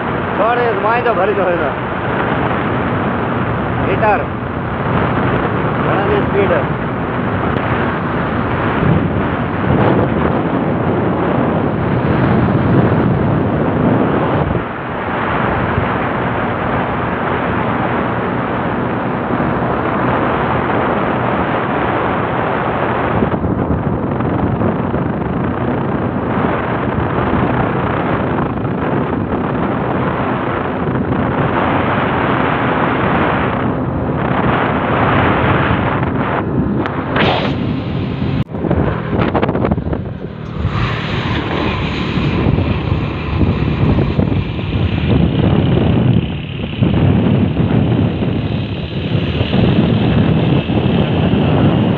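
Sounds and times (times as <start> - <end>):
engine running: 0.0 - 21.2, 23.0 - 51.9
wind buffeting microphone: 0.0 - 51.9.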